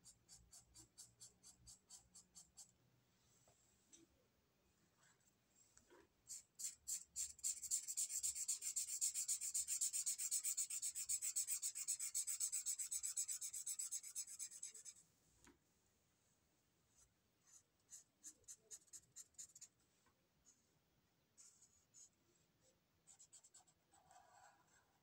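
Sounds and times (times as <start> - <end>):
marker rubbing on paper: 0.0 - 2.8, 6.3 - 15.0, 17.4 - 19.7.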